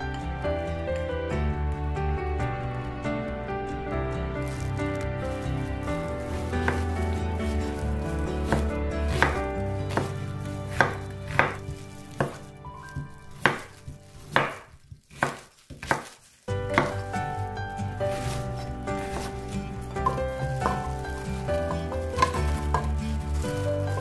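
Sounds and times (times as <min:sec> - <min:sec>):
knife chopping on cutting board: 0:08.5 - 0:12.4, 0:13.4 - 0:17.0.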